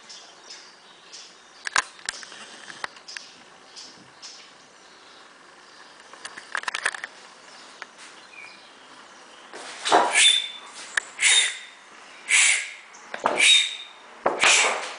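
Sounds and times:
owl hissing screeches: 9.8 - 14.9.

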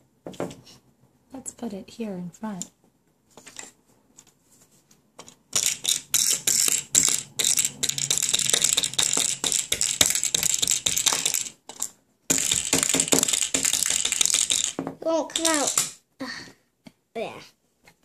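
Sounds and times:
plastic toy clicking and rattling: 5.2 - 16.0.

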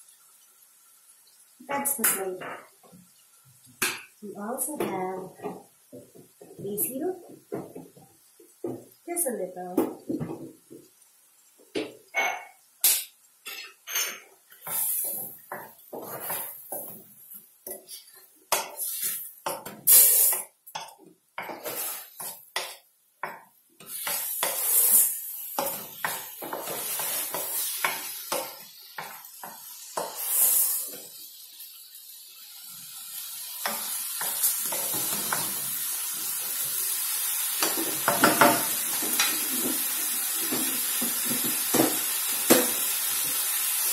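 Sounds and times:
food sizzling: 0.0 - 43.9
wooden spatula scraping wok: 13.9 - 17.1, 17.7 - 20.4, 21.4 - 22.8, 23.8 - 29.2.

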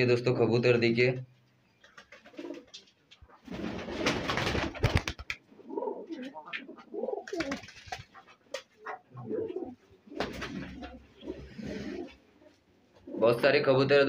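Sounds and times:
wings flapping and rustling: 1.8 - 12.2
pigeons cooing: 5.5 - 13.4.

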